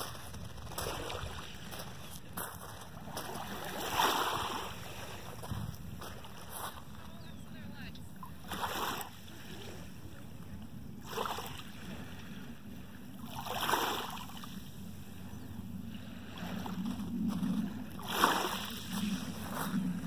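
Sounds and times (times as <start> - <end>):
small waves lapping: 0.0 - 20.0
low rumble: 14.4 - 20.0.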